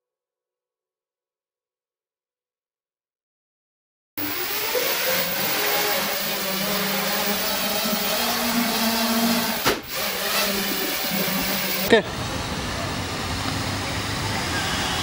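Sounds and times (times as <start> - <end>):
drone motors whirring: 4.2 - 12.8.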